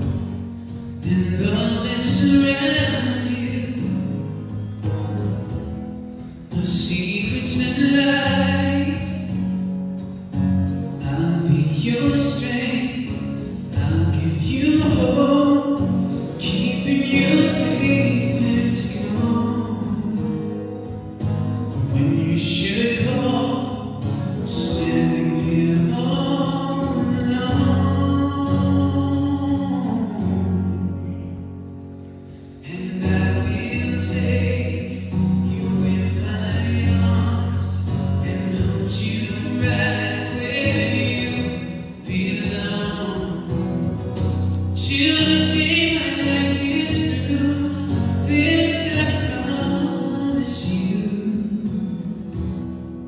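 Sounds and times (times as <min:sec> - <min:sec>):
man singing a slow ballad: 0:00.0 - 0:04.6, 0:06.2 - 0:09.8, 0:10.7 - 0:31.4, 0:32.4 - 0:52.6
acoustic guitar: 0:00.0 - 0:53.0.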